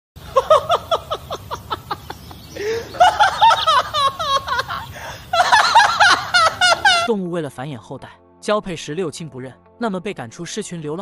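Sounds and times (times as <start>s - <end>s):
high-pitched comic giggling: 0.3s - 7.1s.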